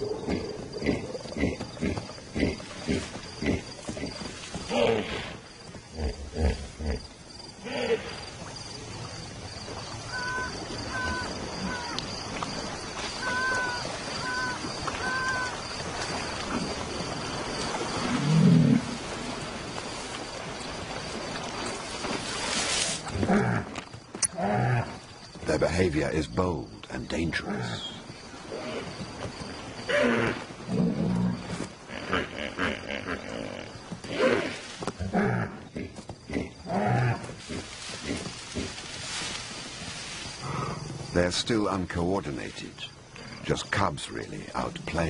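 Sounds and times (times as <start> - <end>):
high insect drone: 0.0 - 45.0
night hiss: 2.6 - 23.3, 37.2 - 45.0.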